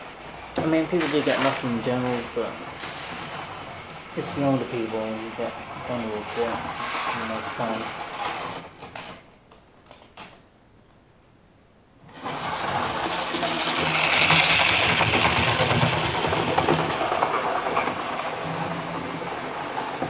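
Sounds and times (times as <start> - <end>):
model train motor whirring: 0.6 - 4.7, 6.3 - 8.7, 12.1 - 20.0.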